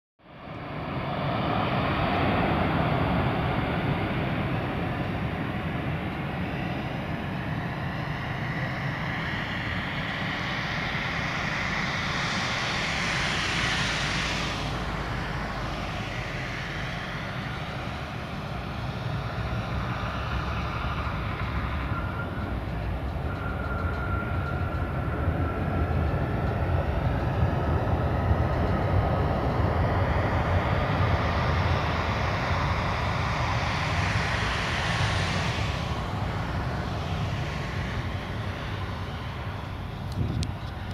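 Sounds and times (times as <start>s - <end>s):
jet engines passing overhead: 0.2s - 40.9s
thin steady whine: 8.0s - 27.9s.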